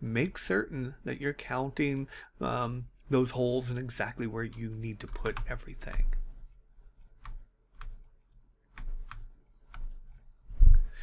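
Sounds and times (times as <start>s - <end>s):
sharp computer clicks: 4.5s - 6.2s.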